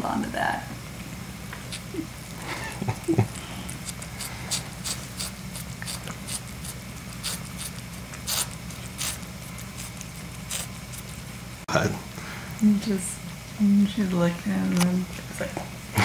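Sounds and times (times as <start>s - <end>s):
steady low hum: 0.0s - 16.0s
cat licking kitten: 1.5s - 11.4s, 12.0s - 13.7s.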